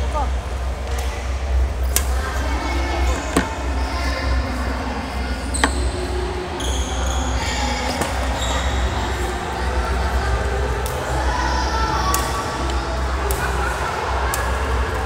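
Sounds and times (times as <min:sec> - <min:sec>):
racket hitting shuttlecock: 0:01.9 - 0:02.2, 0:12.1 - 0:12.3, 0:13.3 - 0:13.5
shoes squeaking on court floor: 0:05.4 - 0:08.9.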